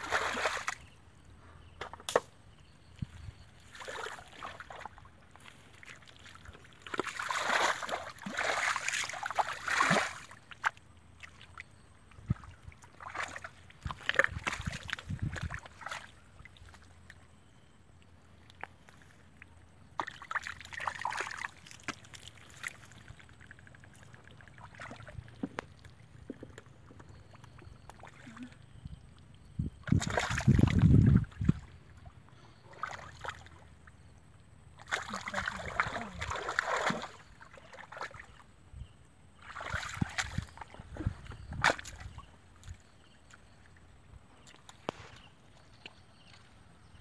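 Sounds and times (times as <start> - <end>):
muddy water sloshing: 0.0 - 47.0.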